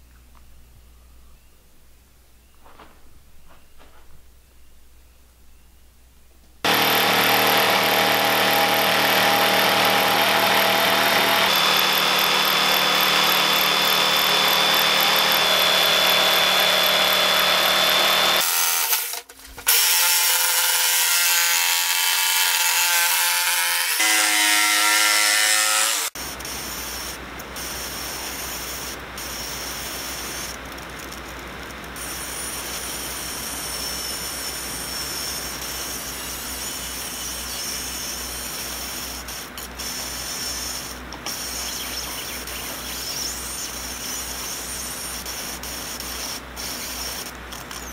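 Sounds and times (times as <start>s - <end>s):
jigsaw cutting wood: 6.6s - 26.2s.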